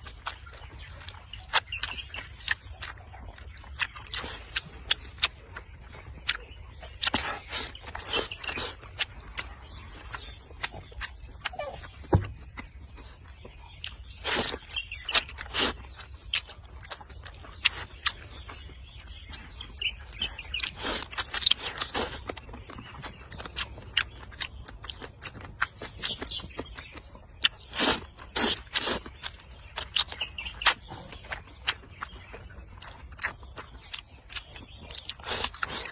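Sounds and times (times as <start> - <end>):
person chewing: 0.0 - 35.9
mouth clicks: 0.2 - 18.6.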